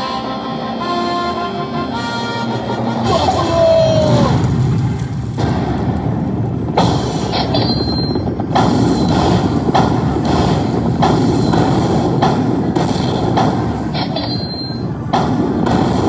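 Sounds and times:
slot machine rumble with bursts: 0.0s - 16.0s
short high beep: 7.6s - 8.2s, 14.0s - 14.9s.

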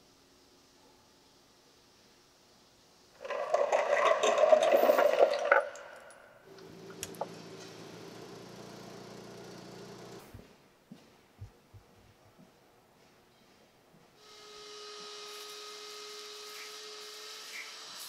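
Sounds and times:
forklift running: 6.5s - 10.3s.

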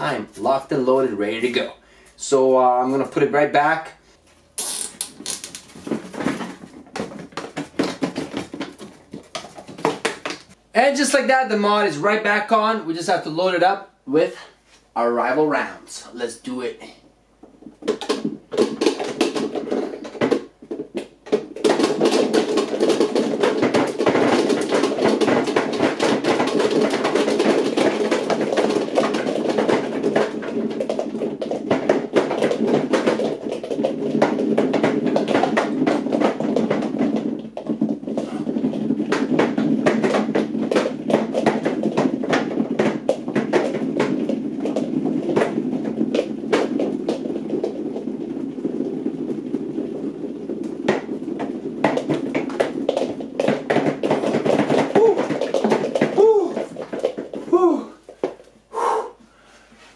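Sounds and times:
foam darts rattling into plastic hopper: 5.0s - 10.6s, 17.6s - 57.5s
scattered knocks: 17.6s - 58.4s.

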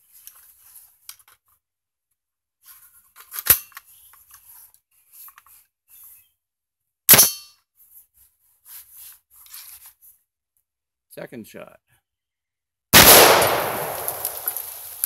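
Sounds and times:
faint handling rustle: 0.0s - 1.6s, 7.7s - 10.3s
sharp metallic rifle cracks: 7.1s - 7.5s, 13.0s - 14.8s.

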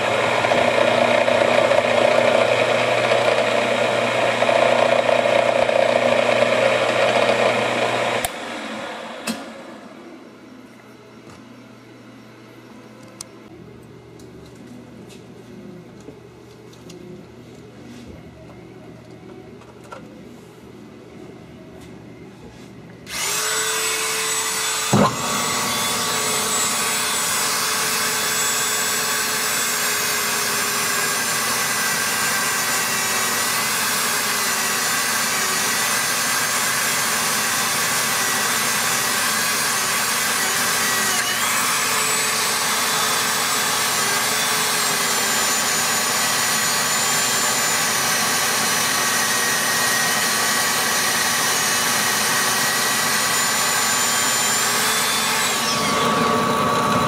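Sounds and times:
rotary tool grinding whine: 0.0s - 8.4s, 23.1s - 57.0s
metal lathe spinning: 0.0s - 9.4s, 23.1s - 57.0s.

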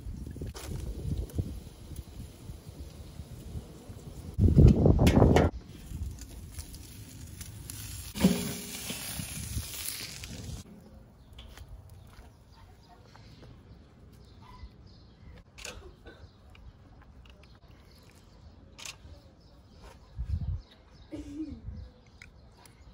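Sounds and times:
metal grill lid clank: 8.2s - 9.2s.

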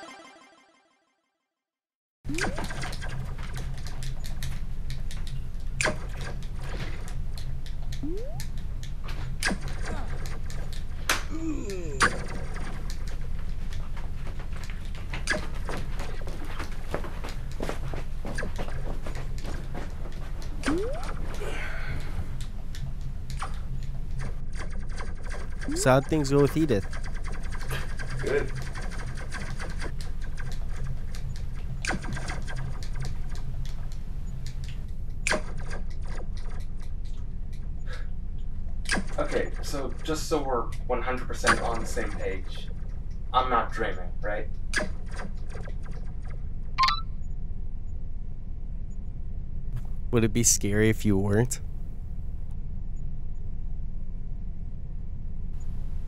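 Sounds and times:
controller buttons clicking: 8.0s - 8.4s
falling electronic chirps: 8.0s - 8.4s.

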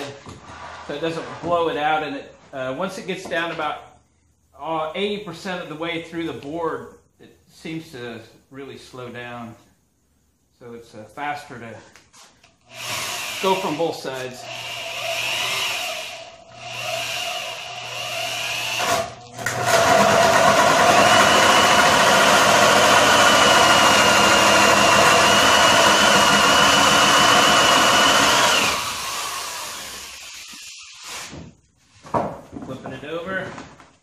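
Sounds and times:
electric drill whining: 12.6s - 13.8s, 14.4s - 31.3s.

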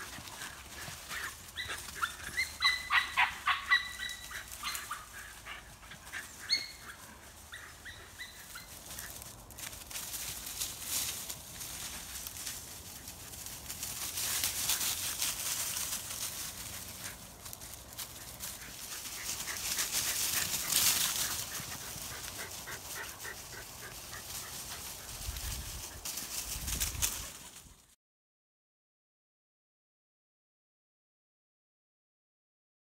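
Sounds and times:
dogs running through dry leaves: 0.0s - 28.0s
dog barking: 1.6s - 5.6s.

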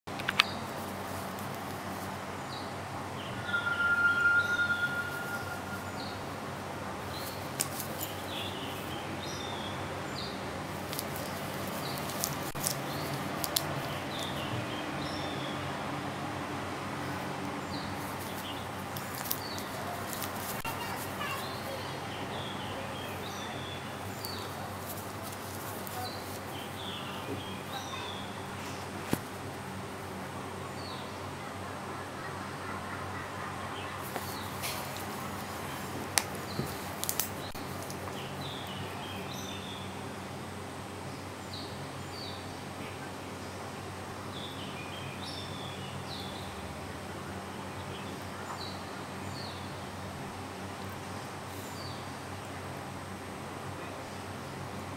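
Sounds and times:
small birds chirping: 0.1s - 6.4s, 7.0s - 15.8s, 17.0s - 29.4s, 32.2s - 40.1s
background hiss: 0.3s - 32.3s.

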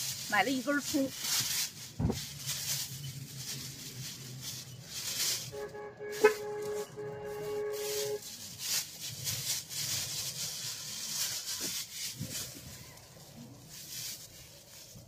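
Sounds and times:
plastic bags crinkling: 0.0s - 15.0s.

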